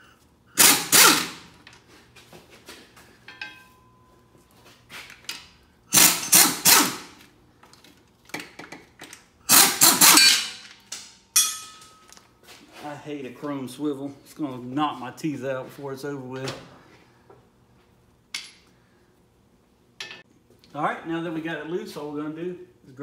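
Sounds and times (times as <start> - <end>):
air ratchet bursts: 0.6 - 1.4, 5.9 - 7.2, 9.5 - 10.6.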